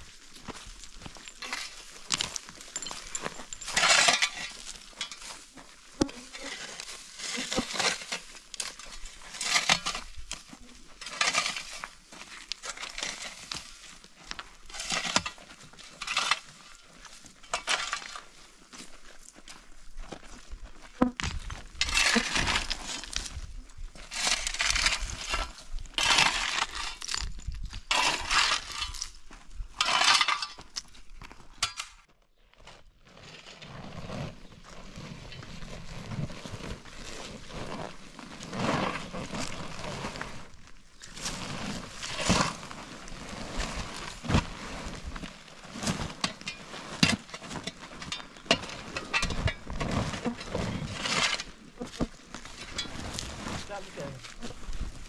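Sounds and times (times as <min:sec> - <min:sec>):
rake scraping stony soil: 0:00.0 - 0:55.0
plastic tarp rustling: 0:33.6 - 0:48.1, 0:51.7 - 0:55.0.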